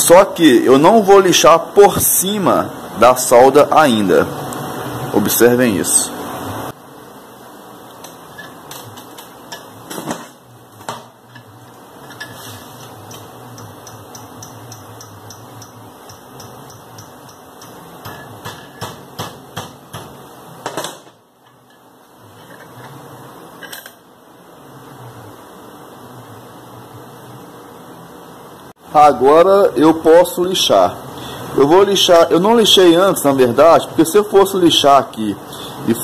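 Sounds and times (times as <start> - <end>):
steady hum: 0.0 - 36.0
hammer tapping steel rod: 13.1 - 20.1.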